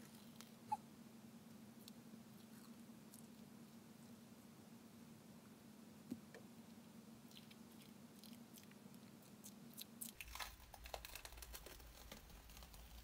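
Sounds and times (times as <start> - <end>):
peel-off face mask crackling: 10.1 - 13.0.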